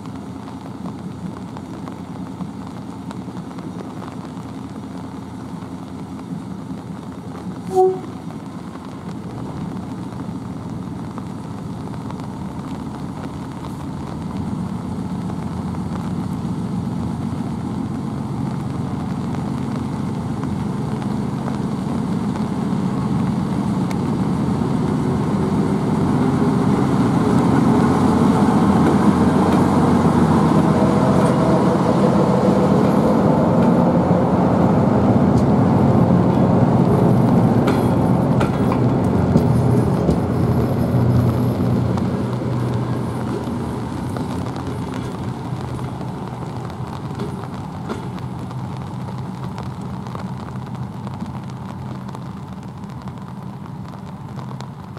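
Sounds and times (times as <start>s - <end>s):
diesel locomotive engine: 0.0s - 54.9s
train horn toot: 7.6s - 8.2s.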